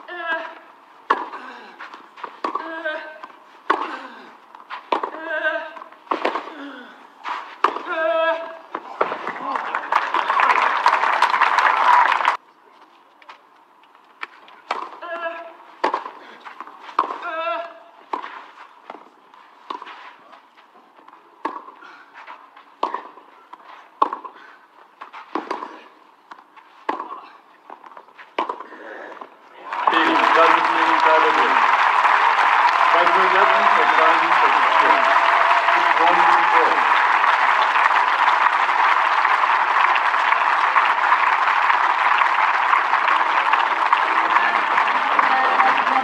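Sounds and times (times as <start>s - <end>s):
crowd applauding: 9.0s - 12.4s, 29.6s - 46.0s
tennis racket hits: 25.2s - 27.2s.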